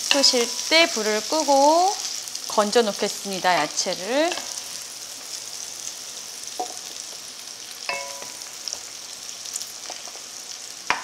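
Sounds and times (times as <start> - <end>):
fat sizzling in a pot: 0.0 - 11.0
spoon clinking on pot: 7.9 - 8.4.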